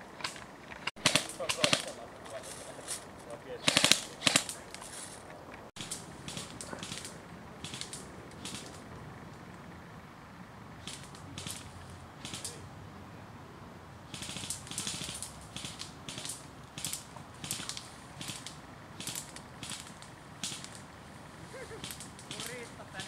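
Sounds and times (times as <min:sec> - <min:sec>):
footsteps crunching through dry litter: 0:00.0 - 0:03.4, 0:04.1 - 0:07.1.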